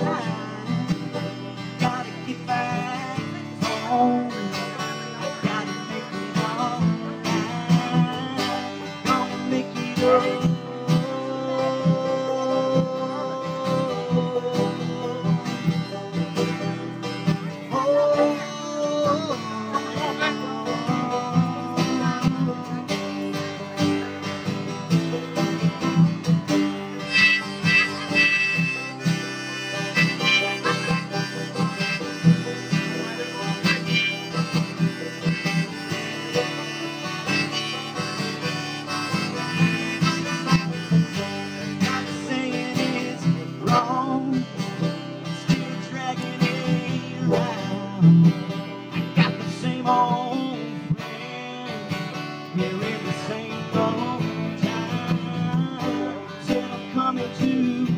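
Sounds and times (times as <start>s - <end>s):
bending lead melody: 0.0s - 43.6s
acoustic guitar and banjo strumming: 0.0s - 57.9s.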